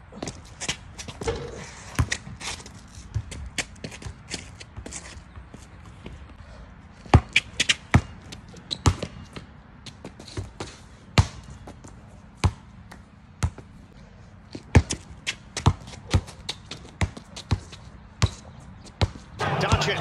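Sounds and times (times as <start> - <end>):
basketball bouncing on asphalt: 0.1 - 19.4.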